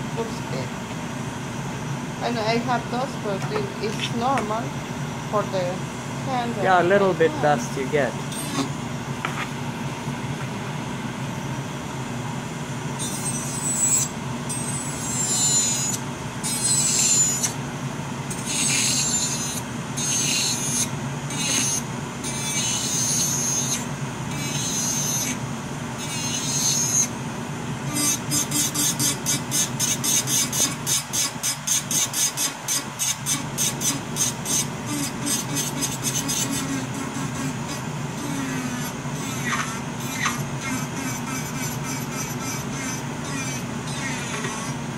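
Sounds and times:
dust collector fan running: 0.0s - 44.9s
nail filing strokes: 18.3s - 23.8s, 26.0s - 27.0s, 27.9s - 44.8s.

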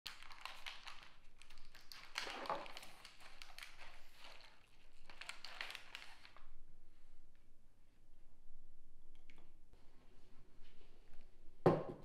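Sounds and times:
wrapper crinkling: 0.1s - 6.5s.

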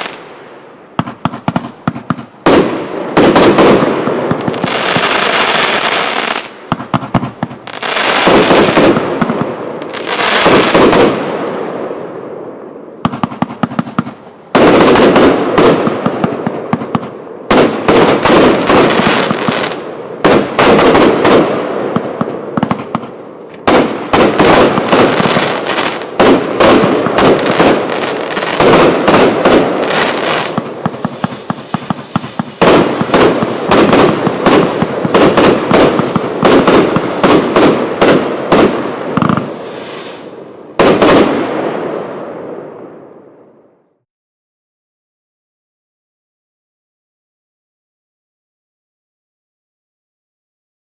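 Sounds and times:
firework popping and crackling: 0.0s - 0.2s, 1.0s - 11.8s, 13.0s - 41.6s
firework launch reports and bursts: 0.0s - 12.2s, 13.0s - 43.3s.

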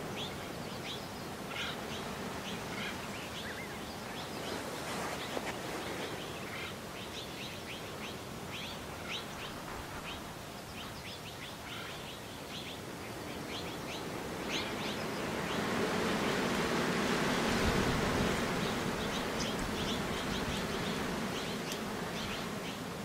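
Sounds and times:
steady outdoor hiss: 0.0s - 23.0s
broad rushing noise: 14.0s - 23.0s
small birds chirping: 18.3s - 23.0s.

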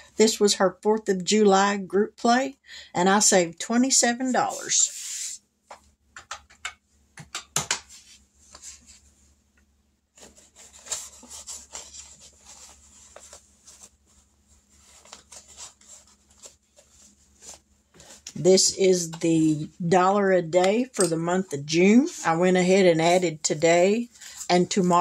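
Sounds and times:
small clicks and taps: 5.7s - 7.8s
paper rustling: 10.1s - 18.4s.

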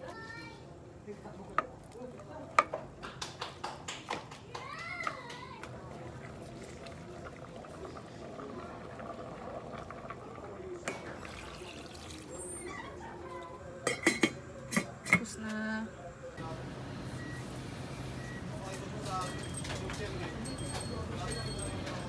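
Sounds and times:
soup bubbling in a pot: 1.2s - 3.0s, 5.7s - 12.6s
metal lid clanking on a pot: 13.8s - 15.3s.

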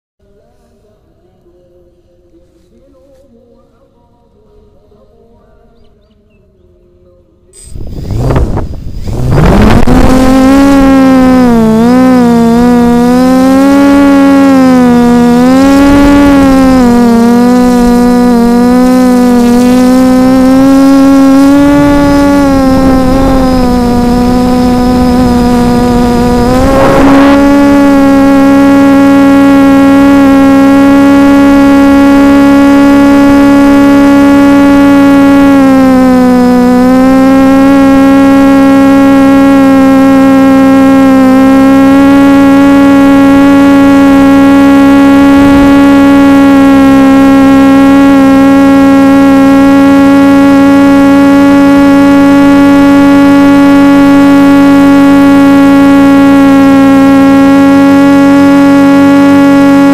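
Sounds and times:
drone motors humming: 7.6s - 59.9s.

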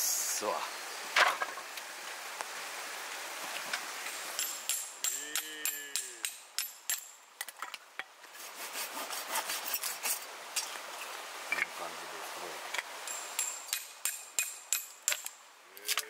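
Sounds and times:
faint steady hiss: 0.0s - 16.0s
sharp metallic clicks and knocks: 12.8s - 15.3s.

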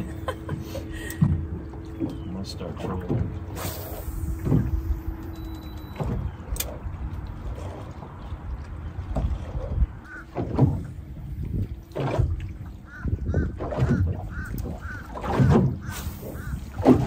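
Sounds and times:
water around boat: 0.0s - 17.0s
wind: 0.0s - 17.0s
geese honking: 10.0s - 10.4s, 12.8s - 16.7s.

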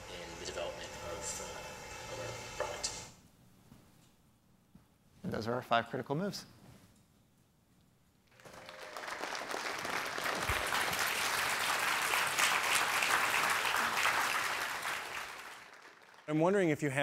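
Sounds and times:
audience applauding: 8.3s - 16.6s.

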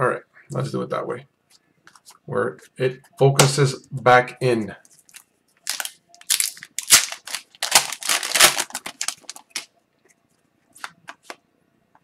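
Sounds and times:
foil wrapper tearing and crinkling: 5.1s - 9.7s.

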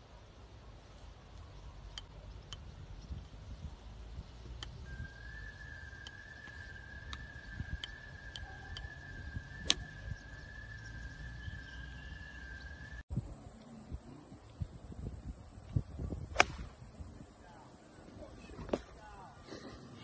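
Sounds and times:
golf ball struck sharply: 16.3s - 16.8s.

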